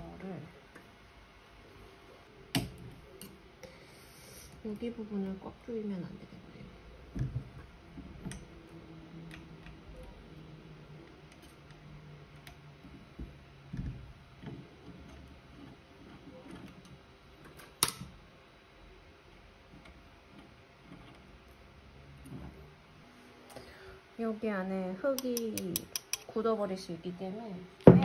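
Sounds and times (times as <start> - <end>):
faint steady hum: 0.0 - 28.0
hands clicking and knocking parts: 25.2 - 26.3.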